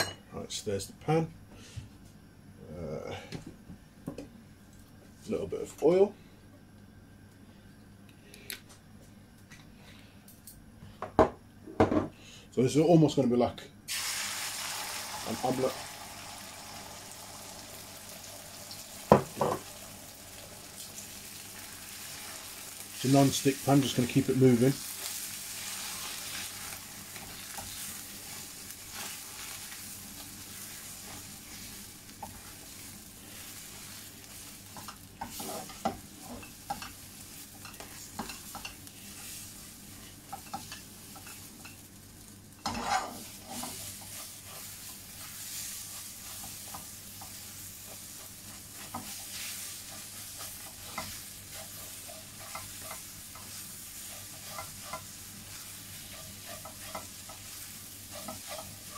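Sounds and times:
eggs sizzling in a pan: 0:13.9 - 0:58.9
spatula scraping a pan: 0:24.9 - 0:41.8, 0:42.6 - 0:58.9.

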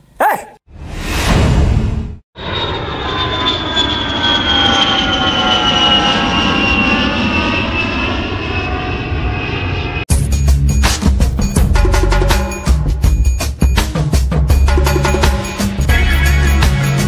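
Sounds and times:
airplane engine roar and whine: 0:02.4 - 0:10.1.

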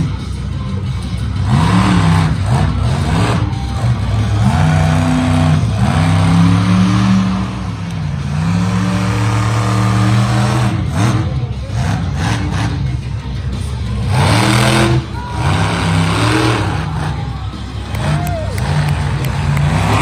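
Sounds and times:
monster truck engine revving: 0:00.0 - 0:20.0.

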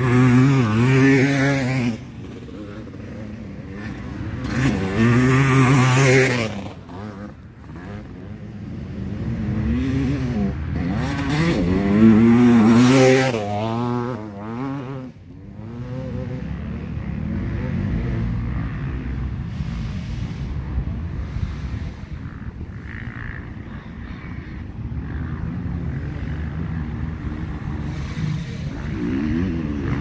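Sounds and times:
dirt bike engines revving: 0:00.0 - 0:30.0.

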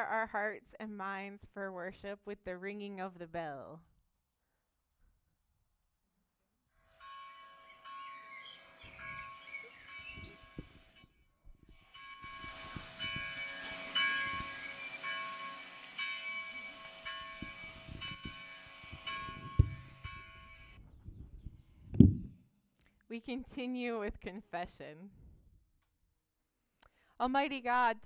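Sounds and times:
bell ringing: 0:12.0 - 0:20.8
sharp thump: 0:19.3 - 0:20.2, 0:22.0 - 0:22.3
low knocks: 0:19.3 - 0:20.3, 0:22.0 - 0:22.4.

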